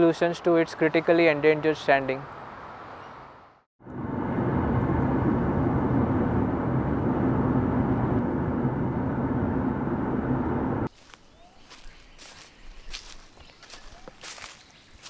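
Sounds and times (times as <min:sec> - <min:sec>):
car engine and road noise: 0:00.2 - 0:15.0.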